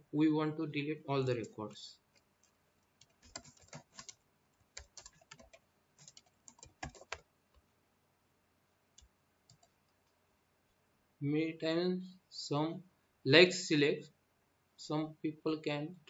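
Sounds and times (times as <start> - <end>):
faint keyboard typing: 1.2 - 7.7, 8.9 - 10.2.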